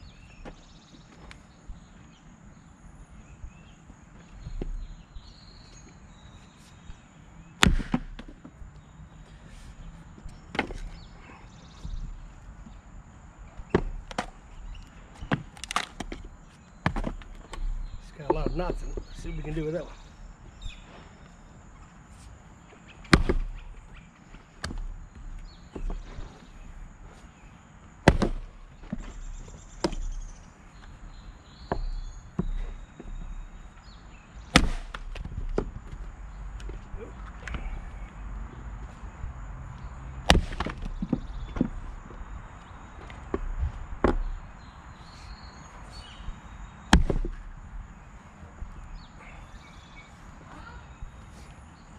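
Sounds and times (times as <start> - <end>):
axe chopping wood: 7.6 - 8.4, 13.7 - 14.4, 16.8 - 17.6, 23.1 - 23.7, 24.6 - 24.9, 28.0 - 29.2, 29.8 - 30.2, 34.5 - 36.0, 40.2 - 41.8, 46.9 - 47.5
firewood pieces knocking: 7.6 - 8.6, 13.6 - 14.4, 15.2 - 19.3, 23.1 - 23.7, 28.0 - 30.3, 34.5 - 37.8, 40.2 - 42.2, 46.9 - 47.5.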